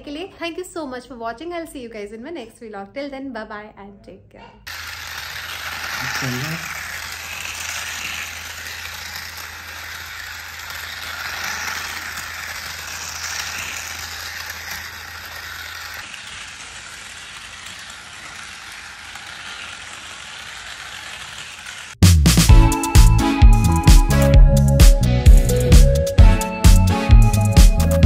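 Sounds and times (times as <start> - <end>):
toy car motor rattling: 4.7 - 22.0
loud music: 22.0 - 28.0.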